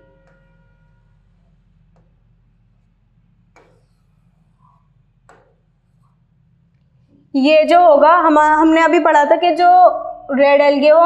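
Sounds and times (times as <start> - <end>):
low room hum: 0.0 - 11.0
chalk ticking on a blackboard: 0.2 - 7.2.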